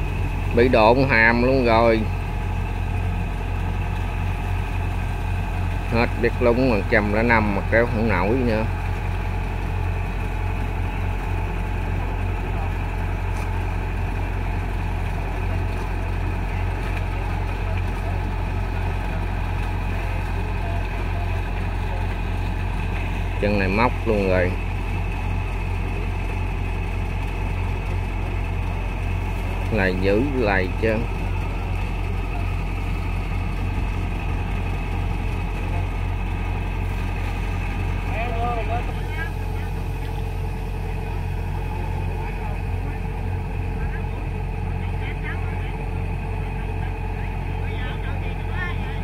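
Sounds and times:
diesel engine running steadily: 0:00.0 - 0:49.0.

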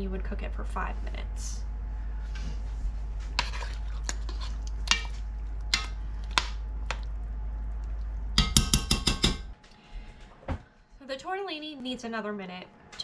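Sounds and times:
steady low hum: 0:00.0 - 0:13.0
metal utensil scraping a pot: 0:03.4 - 0:05.9.

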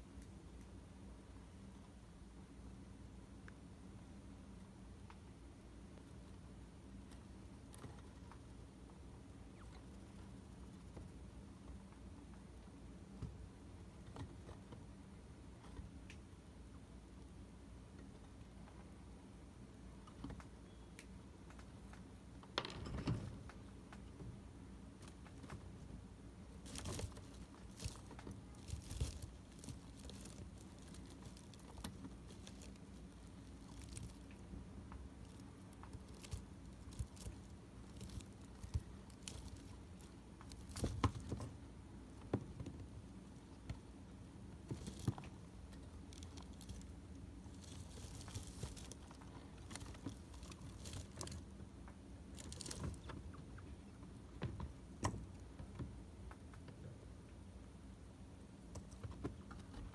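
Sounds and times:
chinchillas nibbling and scratching: 0:04.3 - 0:57.5, 0:58.5 - 0:59.9.

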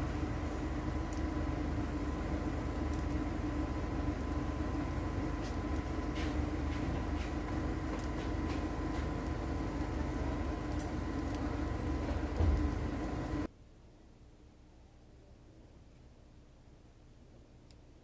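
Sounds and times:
low rumble and hiss: 0:00.0 - 0:18.0
small pops and crackles: 0:00.1 - 0:13.5.

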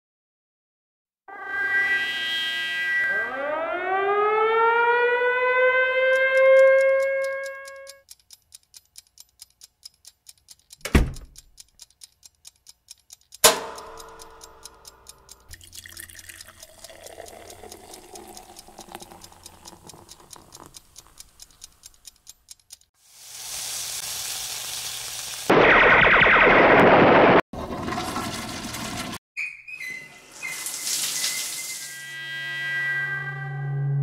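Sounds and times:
clock-like ticking: 0:06.1 - 0:22.9
sharp hit: 0:13.4 - 0:14.2.

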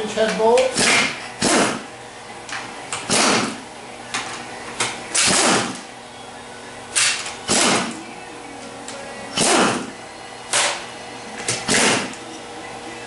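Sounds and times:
pneumatic impact wrench bursts: 0:03.1 - 0:03.6, 0:05.2 - 0:05.8, 0:07.0 - 0:07.9.

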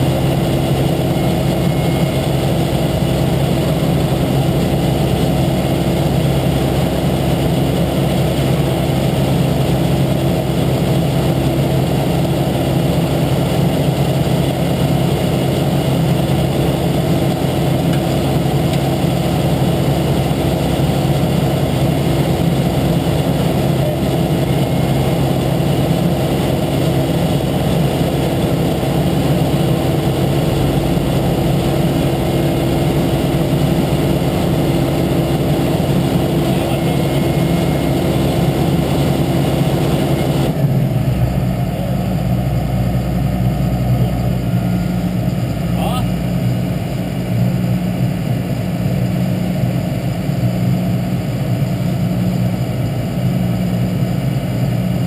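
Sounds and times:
diesel engine humming: 0:00.0 - 0:55.0.

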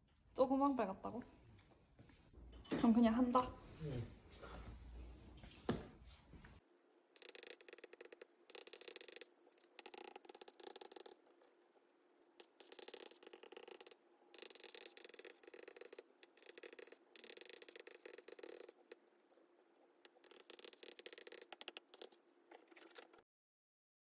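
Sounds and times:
stylus scratching on tablet screen: 0:07.2 - 0:11.8, 0:12.4 - 0:23.2.

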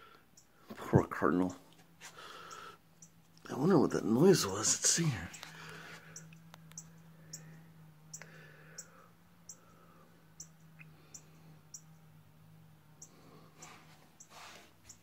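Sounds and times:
low hum: 0:02.1 - 0:15.0
bird chip calls: 0:02.2 - 0:03.2, 0:04.4 - 0:12.2, 0:13.0 - 0:15.0.

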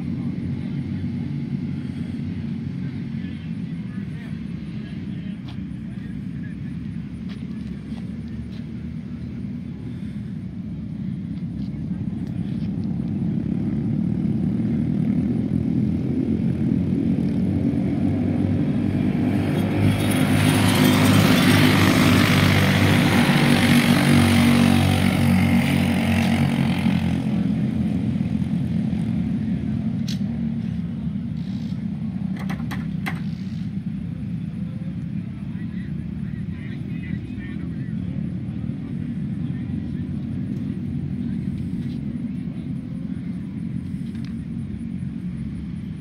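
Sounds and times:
go-kart engines racing: 0:00.0 - 0:46.0
go-kart passing close by: 0:16.7 - 0:27.9.

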